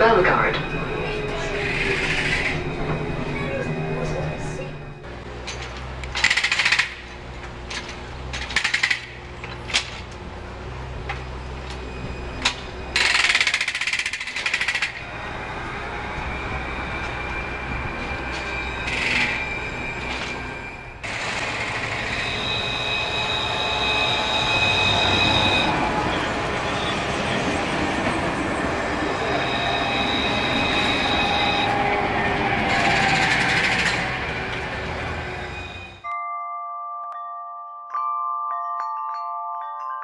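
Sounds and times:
tram whine and wheel noise: 0.0 - 36.1
pneumatic breaker hammering: 5.6 - 7.1.

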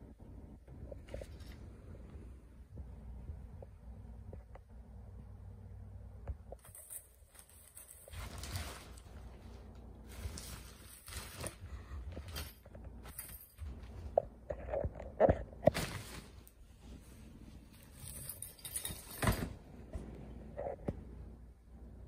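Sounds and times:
nylon tunnel rustling and crinkling: 6.6 - 19.6.

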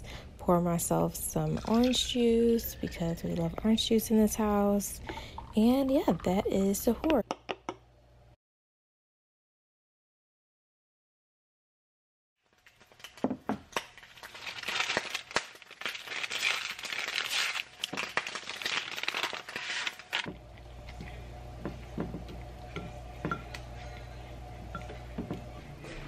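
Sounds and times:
low steady hum: 0.0 - 8.4, 17.8 - 26.0
paper packet crinkling: 12.4 - 20.3.

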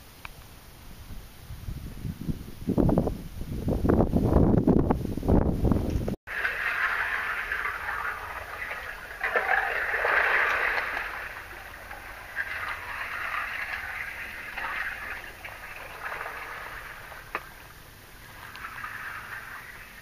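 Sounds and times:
water swishing: 6.3 - 20.0.

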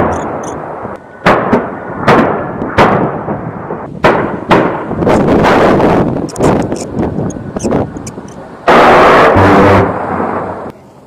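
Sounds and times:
jet roar: 0.0 - 11.0
sharp gunfire bangs with echo: 1.2 - 3.4, 4.0 - 6.0.

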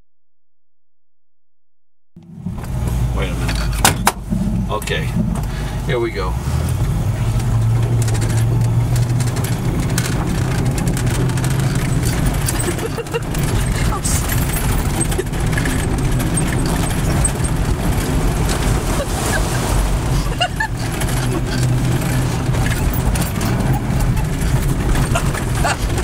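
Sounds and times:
engine and tyre rumble: 2.2 - 26.0
water splashing on windshield: 6.8 - 26.0.

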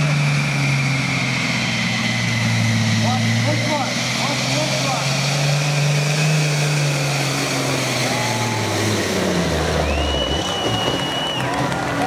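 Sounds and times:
truck engine running under load: 0.0 - 12.0
crowd voices: 9.7 - 12.0
high whistle: 9.8 - 11.6.

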